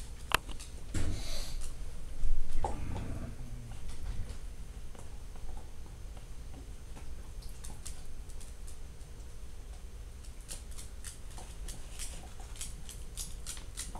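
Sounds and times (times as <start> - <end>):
low steady hum: 0.0 - 13.9
dog claws clicking on wood floor: 7.4 - 13.9.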